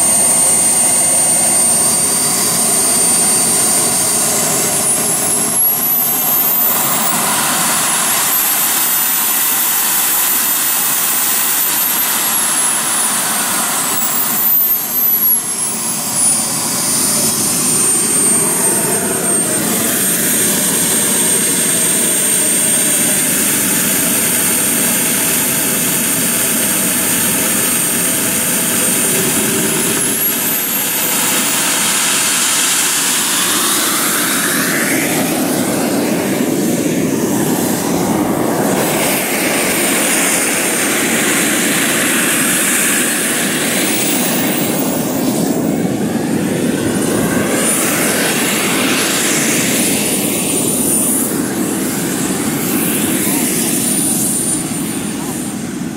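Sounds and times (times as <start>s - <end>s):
model jet turbine whining: 0.0s - 55.9s.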